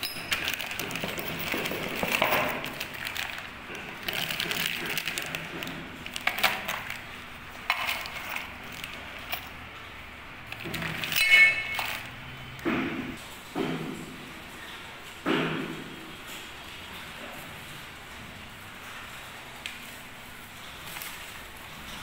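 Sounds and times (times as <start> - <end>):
metal parts clinking: 0.0 - 9.7, 10.5 - 12.3
plastic packaging rustling: 0.0 - 9.7
ringing metallic clink: 11.1 - 12.1.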